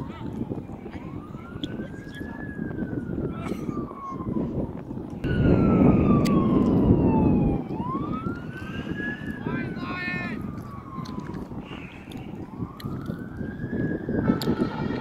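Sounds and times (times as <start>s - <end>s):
siren wailing: 0.0s - 15.0s
loud low rumble: 5.2s - 8.6s.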